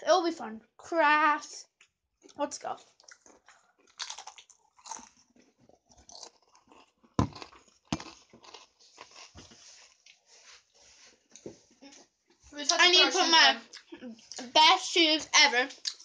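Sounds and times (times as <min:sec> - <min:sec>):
chips crunching: 0:03.0 - 0:10.1.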